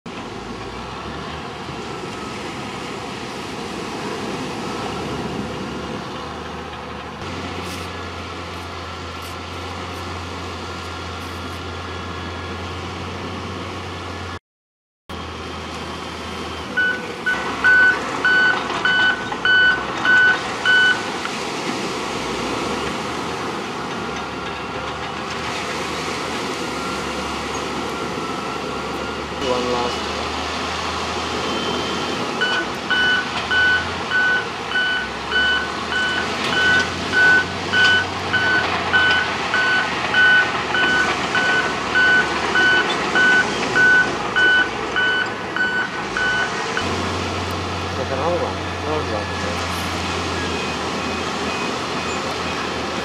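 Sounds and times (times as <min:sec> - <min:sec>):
heavy earth-moving machinery: 0:00.1 - 0:14.4, 0:15.1 - 0:53.0
reversing alarm beeping: 0:16.0 - 0:21.2, 0:26.6 - 0:30.1, 0:31.4 - 0:53.0.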